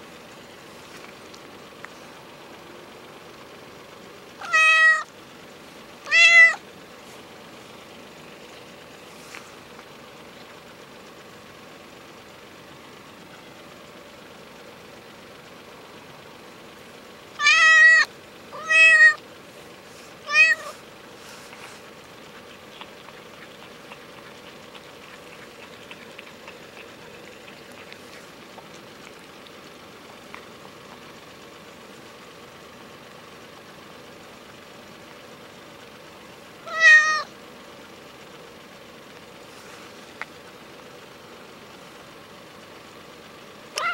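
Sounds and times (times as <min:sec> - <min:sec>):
cat meowing: 0:04.4 - 0:05.1, 0:06.0 - 0:06.6, 0:17.4 - 0:19.2, 0:20.2 - 0:20.8, 0:36.6 - 0:37.3.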